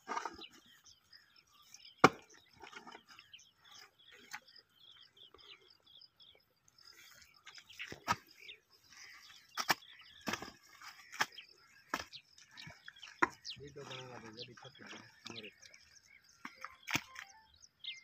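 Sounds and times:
hoe chopping into wet mud: 9.6 - 12.2, 16.8 - 17.2.

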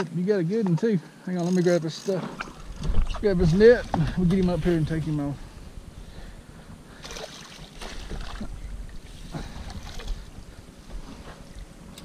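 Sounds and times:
wind rumbling on microphone: 2.4 - 12.0.

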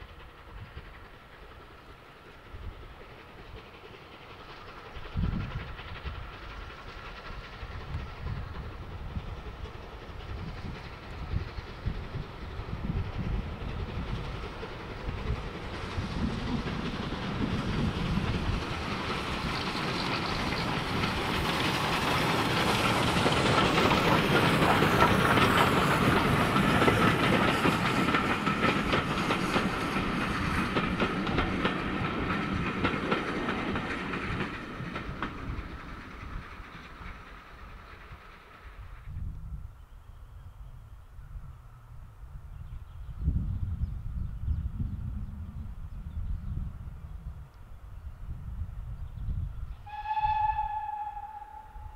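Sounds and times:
train wheels clicking over rail joints: 0.0 - 39.2
steam locomotive working: 0.0 - 51.9.

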